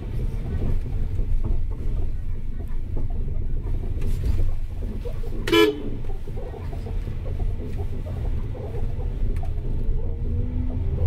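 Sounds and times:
road traffic rumble: 0.0s - 11.0s
car horn toot: 5.4s - 6.0s.

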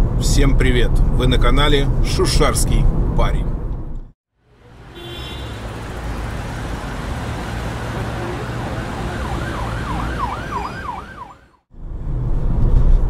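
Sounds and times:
road traffic rumble: 0.0s - 13.0s
emergency vehicle siren: 4.5s - 11.7s.

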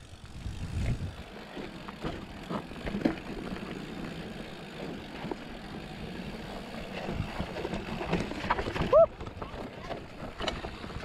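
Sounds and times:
bike tyres rumbling on dirt: 0.0s - 11.0s
wind on microphone: 0.1s - 1.2s
bike frame rattling and knocking: 0.6s - 11.0s.

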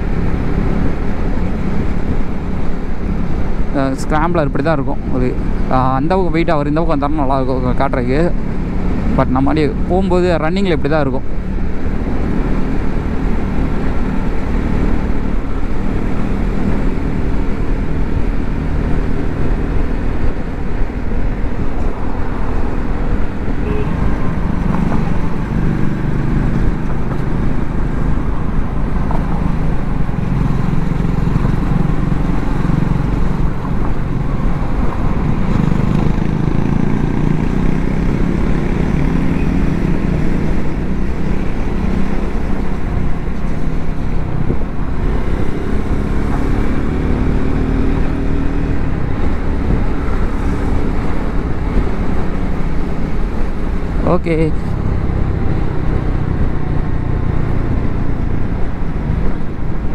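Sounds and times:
wind and road noise: 0.0s - 59.9s
motorcycle engine running steadily: 20.0s - 41.9s.

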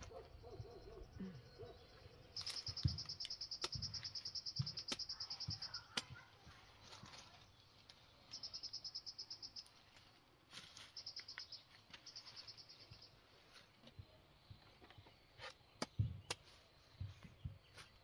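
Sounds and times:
insect chirping trills: 0.0s - 6.0s, 8.0s - 13.6s
sharp knocks and dull thumps: 2.4s - 6.3s, 13.8s - 18.0s.

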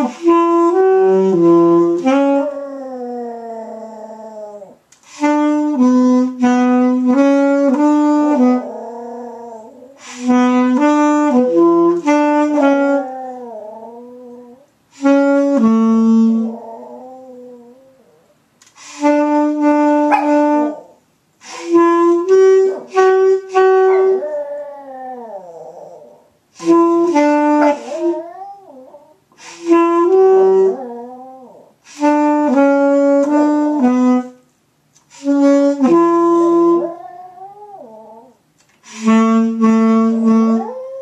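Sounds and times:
saxophone playing held notes: 0.0s - 4.0s, 5.0s - 18.0s, 18.7s - 25.6s, 26.5s - 38.2s, 38.8s - 41.0s
dog howling: 16.5s - 18.2s, 23.9s - 26.2s, 27.6s - 29.2s, 30.5s - 31.7s, 36.7s - 38.4s, 40.6s - 41.0s.

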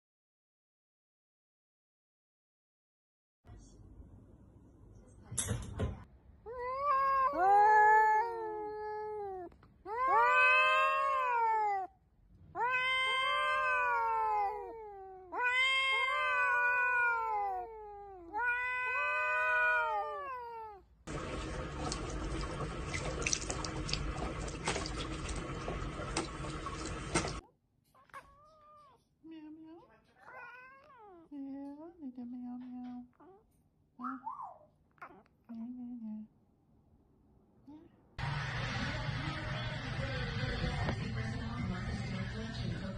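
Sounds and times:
cat yowling: 6.5s - 12.0s, 12.6s - 20.9s
water running from tap: 21.1s - 27.4s.

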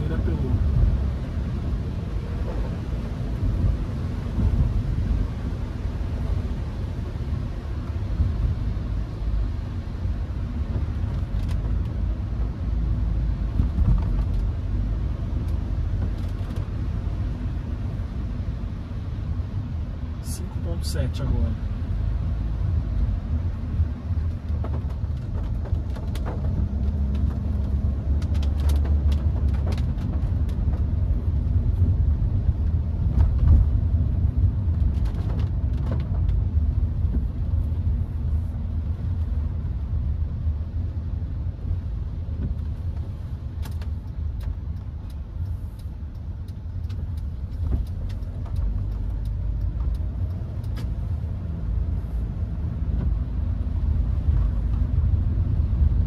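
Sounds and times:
engine and tyre rumble: 0.0s - 56.0s
light clicks and taps: 24.2s - 31.0s, 42.3s - 51.9s.

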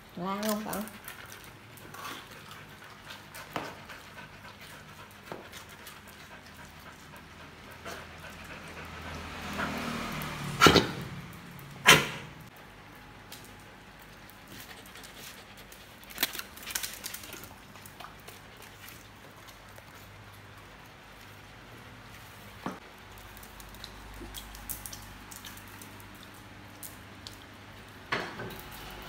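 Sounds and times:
puppies playing: 0.4s - 11.9s
puppy barks: 11.8s - 12.4s.

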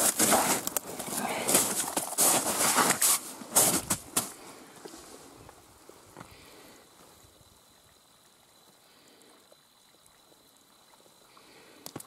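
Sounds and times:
trickling water: 7.5s - 12.0s.

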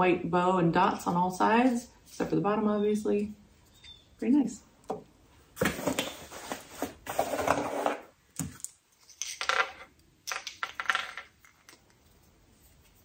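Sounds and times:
cardboard box rustling: 5.6s - 8.0s
wooden pieces clacking together: 8.4s - 12.0s.

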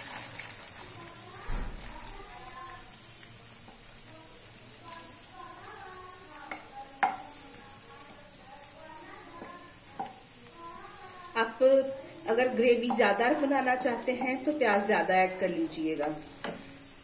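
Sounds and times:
onions sizzling in oil: 0.0s - 17.0s
wooden spoon knocking on plate: 6.5s - 7.2s.

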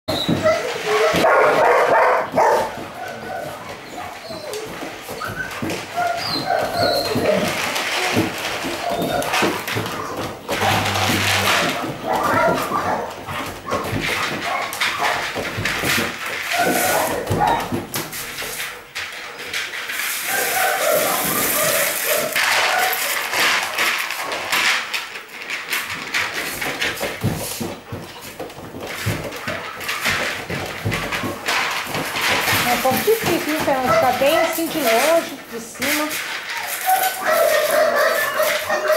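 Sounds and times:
puppy whining and yipping: 3.1s - 7.4s
puppy crunching kibble: 6.6s - 12.6s
pan knocking on tiles: 10.5s - 12.0s.

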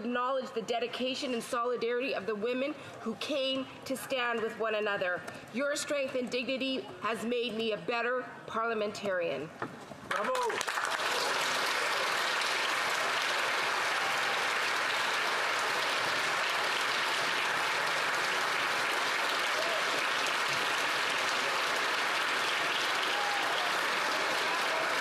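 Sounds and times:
crowd applauding: 10.1s - 25.0s.

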